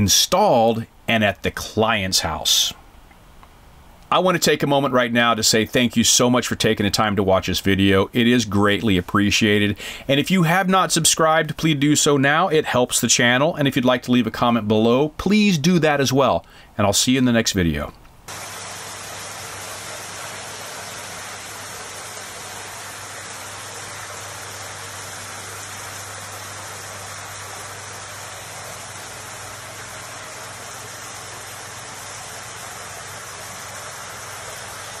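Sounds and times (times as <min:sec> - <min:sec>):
low steady hum: 0:00.0 - 0:35.0
water streams splashing into basin: 0:18.3 - 0:35.0.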